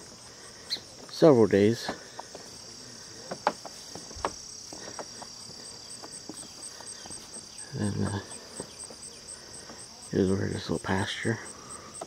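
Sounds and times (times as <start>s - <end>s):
crickets singing: 0.0s - 12.0s
footsteps on wooden planks: 3.2s - 7.4s.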